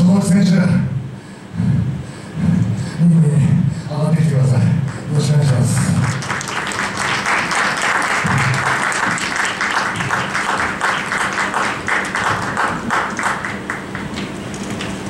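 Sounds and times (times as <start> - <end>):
audience applauding: 4.9 - 14.3.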